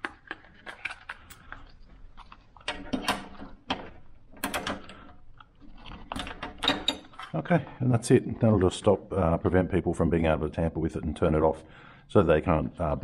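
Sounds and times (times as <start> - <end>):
padlock clicking and rattling: 2.6 - 7.4.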